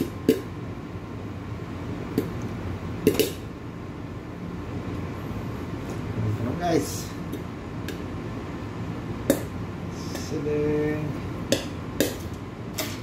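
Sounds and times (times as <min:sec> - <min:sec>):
steady hum: 0:00.0 - 0:13.0
popcorn popping in a saucepan: 0:03.0 - 0:03.4.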